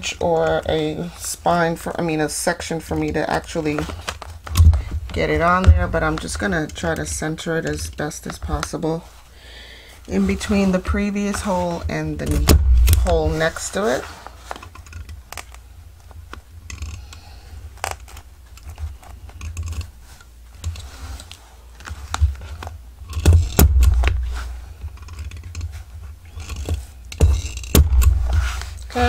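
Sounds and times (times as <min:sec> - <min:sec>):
scraping through journal spine: 0:10.1 - 0:29.0.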